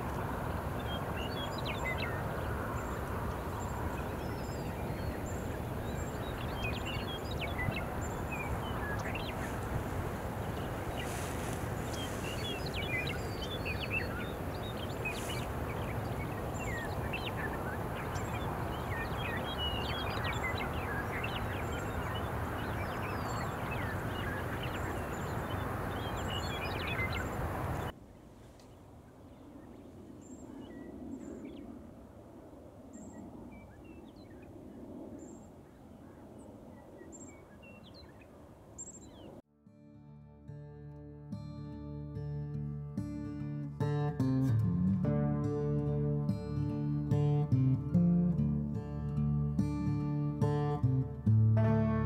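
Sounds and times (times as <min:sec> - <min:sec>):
small birds chirping: 0:00.0 - 0:27.9
outdoor background noise: 0:00.0 - 0:39.5.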